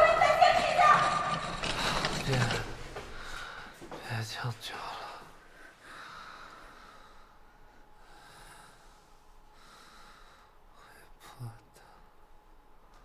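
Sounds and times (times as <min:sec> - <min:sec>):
person breathing: 0:01.7 - 0:04.0, 0:04.8 - 0:11.0.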